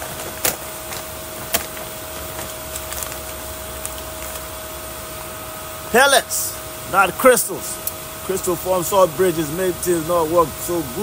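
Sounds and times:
plastic bag crackling: 0:00.0 - 0:04.8
steady machine hum: 0:00.0 - 0:11.0.

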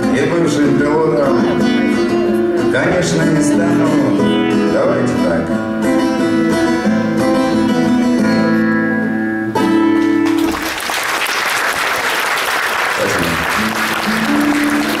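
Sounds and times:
acoustic guitar playing: 0:00.0 - 0:10.8, 0:12.9 - 0:15.0
audience applause: 0:10.2 - 0:15.0.

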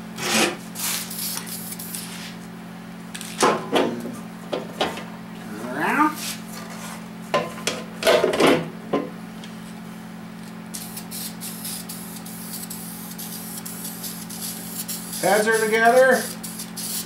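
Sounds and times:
aerosol spray can hissing: 0:10.8 - 0:17.0.

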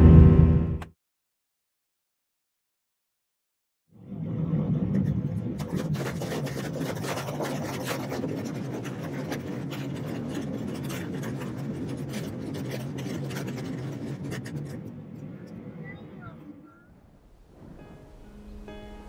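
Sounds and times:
airliner engine drone: 0:04.0 - 0:19.0
scraping handling noise on microphone: 0:05.6 - 0:15.2.

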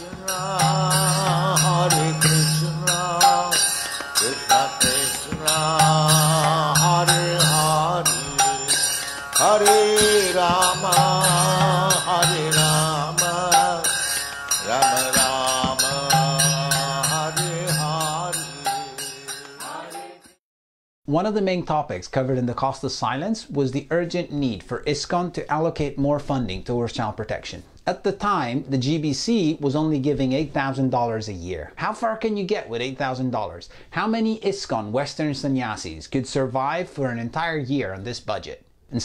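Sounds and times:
solo voice chanting: 0:00.0 - 0:08.6, 0:09.4 - 0:14.0, 0:14.6 - 0:19.1.

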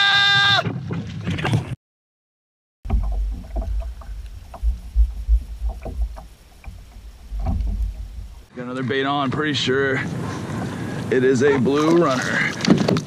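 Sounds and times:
wind rumbling on microphone: 0:02.8 - 0:08.5
knocks against kayak hull: 0:02.9 - 0:08.5
water lapping: 0:02.9 - 0:08.5.

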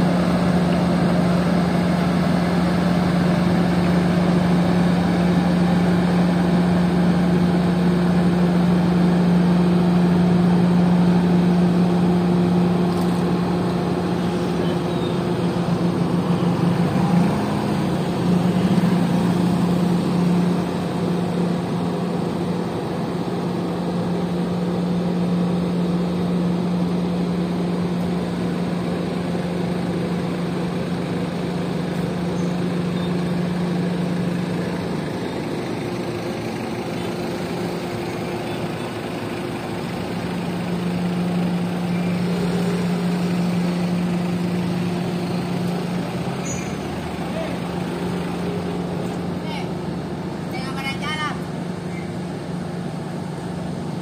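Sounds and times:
diesel engine droning: 0:00.0 - 0:54.0.

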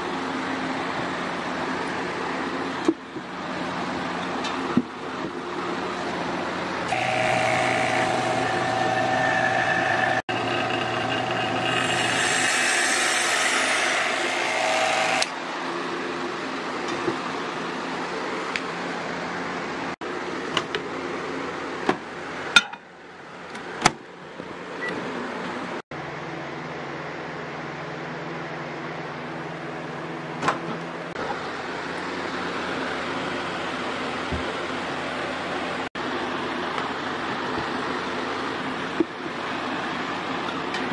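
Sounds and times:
electric vacuum pump running: 0:06.7 - 0:15.4
microwave oven humming: 0:06.8 - 0:12.4.

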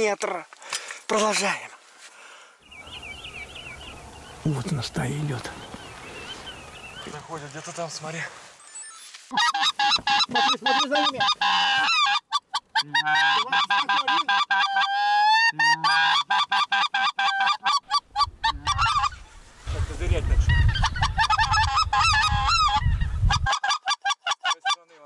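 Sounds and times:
geese honking: 0:09.3 - 0:19.4, 0:20.4 - 0:25.0.

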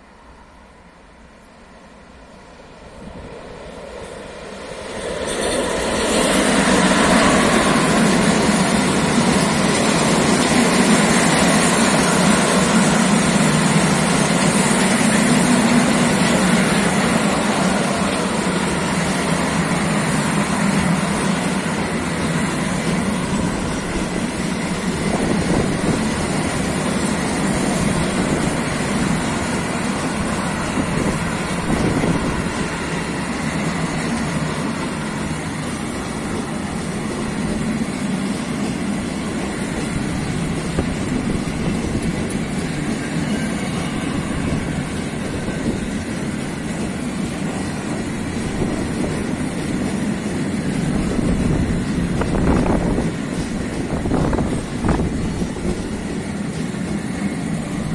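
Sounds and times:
freight train passing: 0:00.0 - 0:57.9
steel wheels rumbling on rail: 0:00.0 - 0:57.9.

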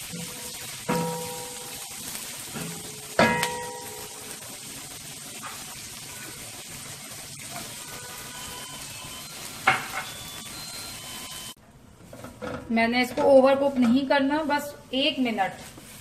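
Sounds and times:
utensil clanking on pan: 0:00.0 - 0:04.2
vegetables sizzling in oil: 0:00.0 - 0:12.4, 0:13.1 - 0:16.0.

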